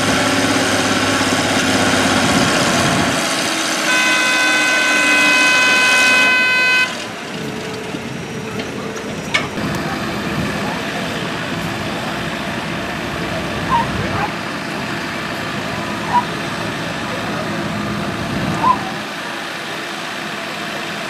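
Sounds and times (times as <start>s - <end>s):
tractor diesel engine under load: 0.0s - 21.0s
horn blast: 3.4s - 7.2s.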